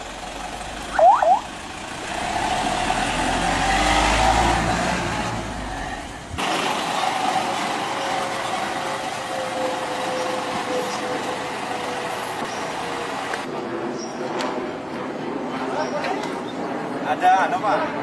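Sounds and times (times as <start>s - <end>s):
truck engine running: 0.0s - 3.9s, 5.1s - 13.5s
road and traffic noise: 0.0s - 18.0s
quick rising chirps: 0.9s - 1.5s.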